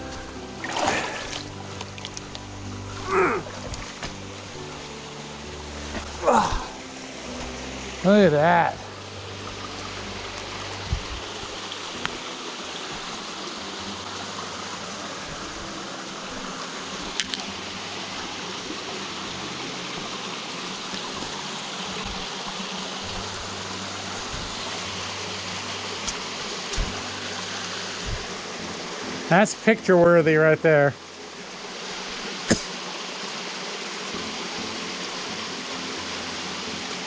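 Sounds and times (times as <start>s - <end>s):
stream water rushing: 0.0s - 37.0s.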